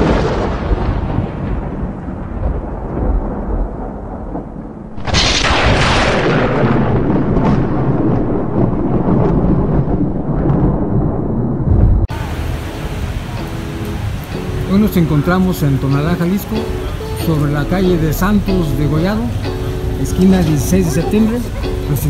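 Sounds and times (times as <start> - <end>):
deep heavy rumble: 0.0 - 15.9
whooshing hit: 5.0 - 9.4.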